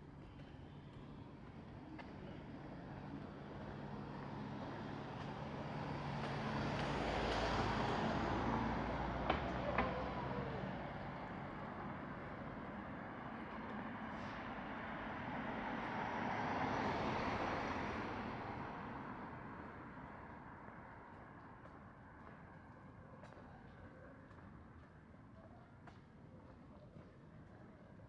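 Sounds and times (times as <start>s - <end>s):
vehicles passing: 0.1s - 24.7s.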